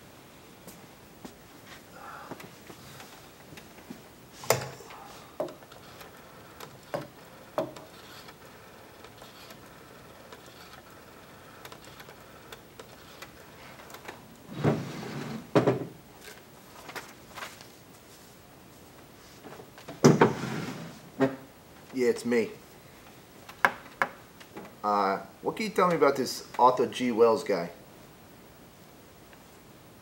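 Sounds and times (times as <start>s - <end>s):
objects knocking on wooden desk: 6.9s - 7.9s, 15.5s - 16.0s.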